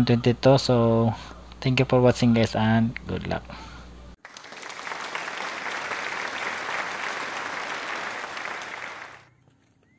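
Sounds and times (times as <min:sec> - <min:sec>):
applause: 0:04.2 - 0:09.3.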